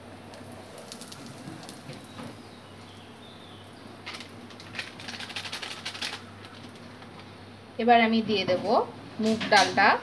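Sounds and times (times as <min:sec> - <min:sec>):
spices sizzling in hot oil: 0:00.0 - 0:06.8.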